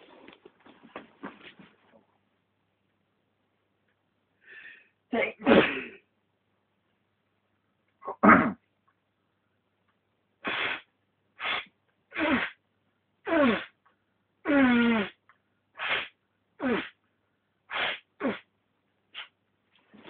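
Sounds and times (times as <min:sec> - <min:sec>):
man sneezing: 0:05.3 - 0:06.0, 0:08.0 - 0:08.6, 0:11.4 - 0:12.6, 0:13.3 - 0:13.7, 0:15.8 - 0:17.0.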